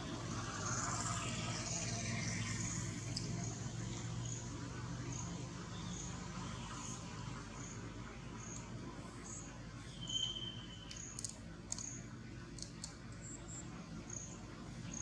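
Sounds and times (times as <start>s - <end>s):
faint high chirp: 9.3s - 12.1s
high whistle: 10.0s - 10.9s
sharp clicks: 10.8s - 13.3s.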